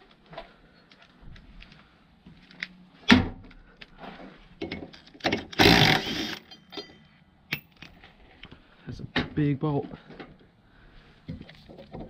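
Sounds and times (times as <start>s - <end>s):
clicks of tools and metal: 4.6s - 8.5s
impact driver hammering: 5.2s - 6.6s.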